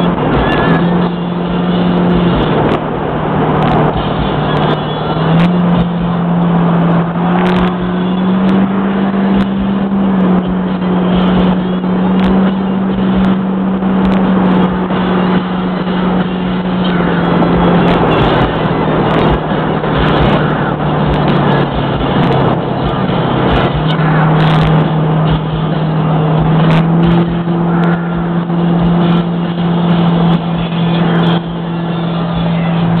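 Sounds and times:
car engine droning: 0.0s - 33.0s
road and wind noise: 0.0s - 33.0s.

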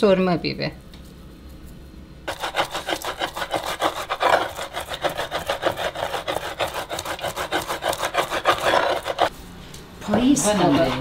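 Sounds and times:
stone pestle grinding herbs: 2.3s - 9.3s.

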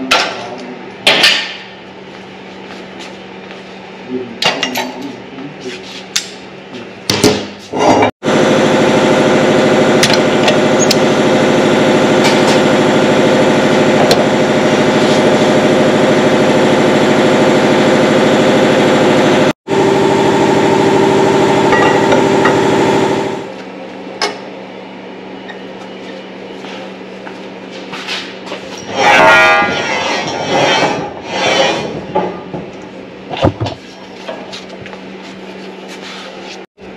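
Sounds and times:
motor hum: 8.2s - 27.6s
machine cutting steel pipe: 8.4s - 23.5s, 28.8s - 32.0s.

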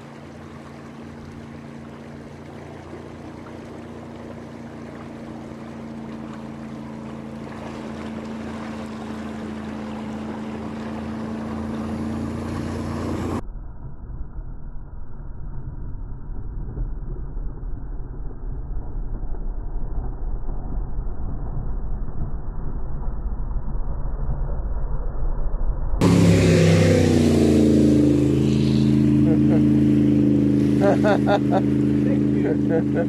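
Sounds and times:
engine droning: 0.0s - 33.0s
wind rumble on microphone: 11.2s - 32.5s.

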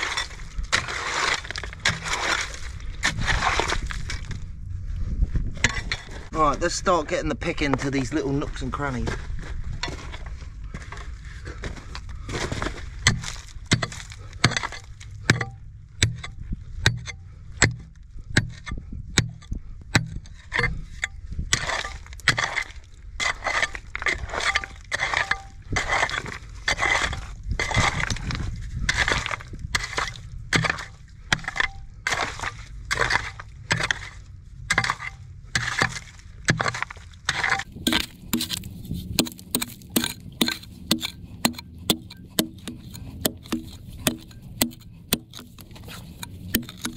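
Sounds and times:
stone chinking and cracking: 0.0s - 4.2s, 13.0s - 18.6s, 20.0s - 27.2s, 28.9s - 46.9s
pickaxe striking rock: 0.8s - 3.8s, 13.1s - 19.4s, 24.4s - 28.1s, 28.9s - 46.9s.

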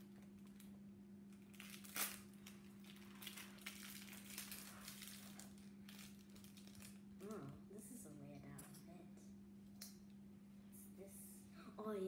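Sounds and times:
plastic wrapper crinkling: 1.3s - 7.4s.

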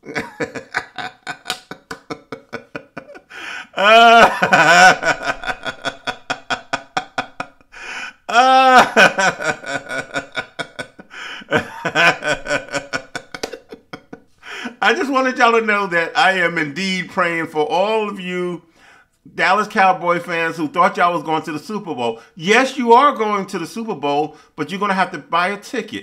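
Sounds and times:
man laughing hard: 0.0s - 14.8s.

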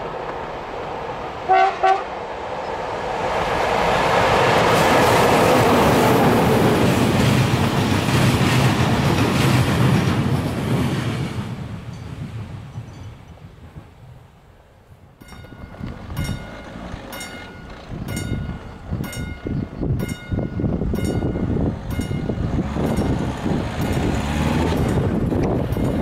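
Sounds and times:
level crossing warning bell: 15.2s - 26.0s
cars driving past: 21.7s - 26.0s.

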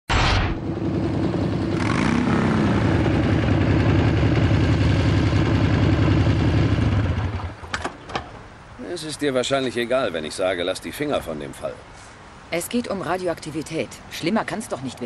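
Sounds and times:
motorcycle engine idling: 0.8s - 7.6s.

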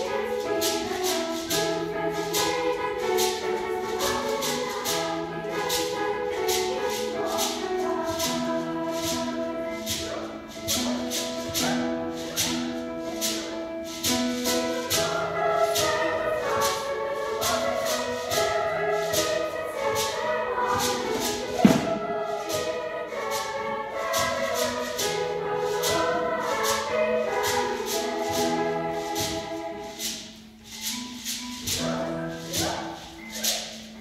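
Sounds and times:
choir singing: 0.0s - 34.0s
piano accompaniment: 0.0s - 34.0s
shaken percussion rhythm: 0.0s - 34.0s
sharp thump: 21.6s - 22.0s.

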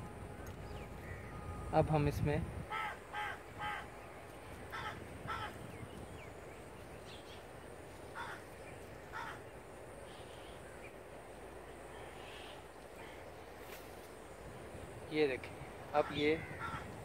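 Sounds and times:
crow cawing: 2.7s - 3.9s, 4.7s - 5.6s, 8.1s - 8.5s, 9.1s - 9.5s, 16.0s - 17.0s.

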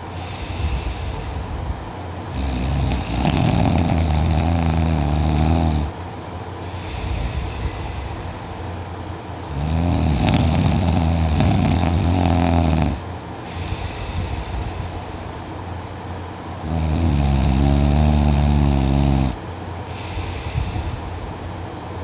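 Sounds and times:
quiet breathing: 0.0s - 1.7s, 6.6s - 8.8s, 13.4s - 15.6s, 19.8s - 21.6s
person snoring loudly: 2.3s - 6.0s, 9.4s - 14.9s, 16.6s - 19.4s.

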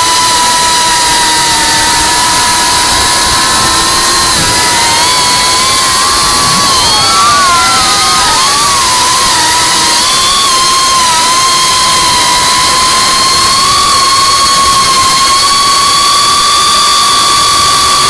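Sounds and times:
drone motors whining: 0.0s - 18.0s
rushing air hiss: 1.2s - 11.4s.

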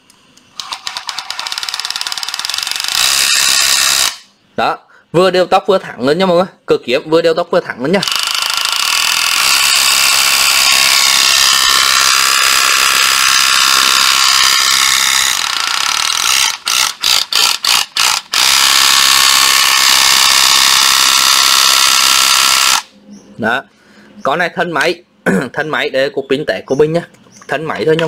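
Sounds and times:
reciprocating saw whirring: 0.6s - 4.3s, 8.0s - 22.9s.

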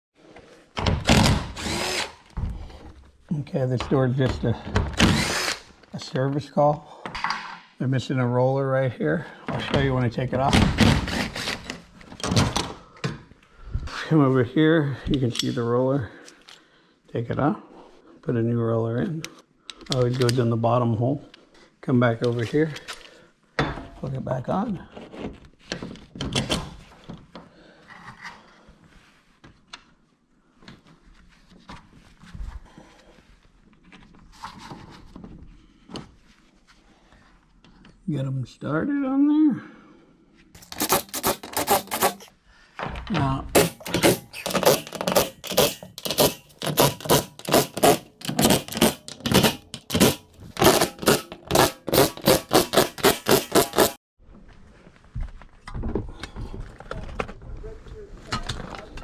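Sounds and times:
hand ratchet clicking: 43.6s - 54.0s.

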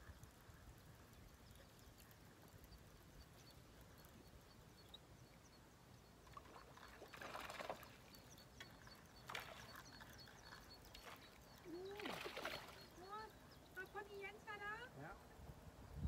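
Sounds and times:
small waves lapping on rocks: 6.2s - 13.4s.

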